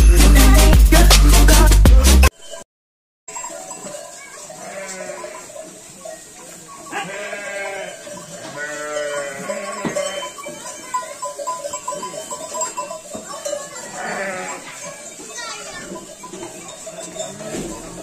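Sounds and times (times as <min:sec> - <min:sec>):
sheep bleating: 0:04.5 - 0:05.6, 0:06.9 - 0:10.4, 0:13.8 - 0:14.9.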